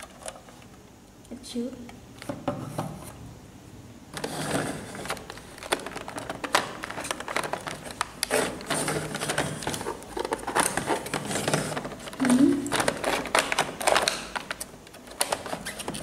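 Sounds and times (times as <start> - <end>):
plastic packaging crackling: 4.2 - 16.0.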